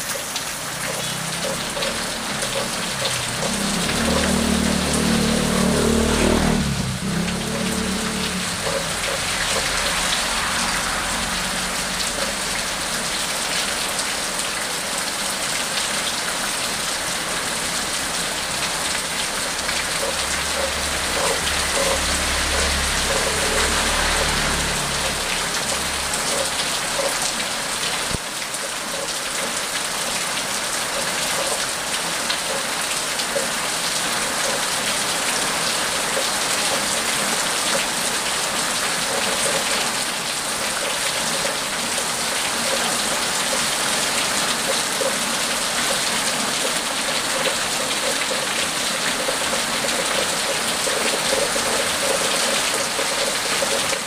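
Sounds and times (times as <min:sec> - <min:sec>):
heavy rain on pavement: 0:00.0 - 0:54.0
car passing: 0:00.6 - 0:14.5, 0:17.0 - 0:28.2.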